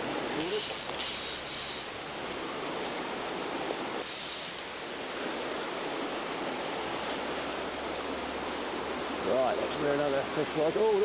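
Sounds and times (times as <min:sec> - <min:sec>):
river water rushing: 0:00.0 - 0:11.0
fly reel drag buzzing: 0:00.4 - 0:02.0, 0:03.7 - 0:04.7.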